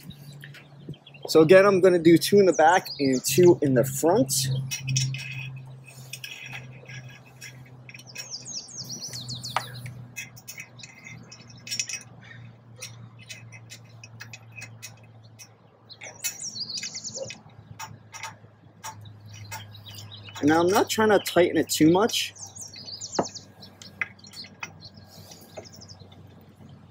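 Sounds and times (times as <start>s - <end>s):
songbirds trilling: 0.0s - 26.9s
allen wrench metal clicks: 4.6s - 21.0s.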